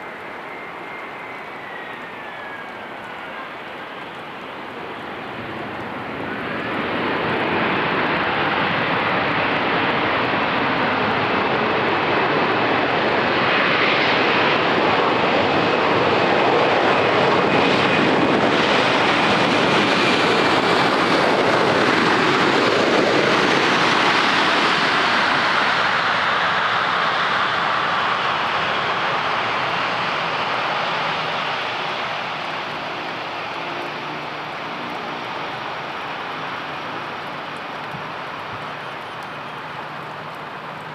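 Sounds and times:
faint high whine: 0.0 - 6.8
airliner engines passing: 0.0 - 40.9.

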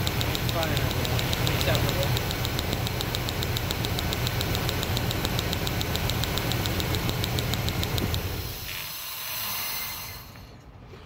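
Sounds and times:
spark tester snapping: 0.0 - 8.6
engine idling: 0.0 - 8.7.

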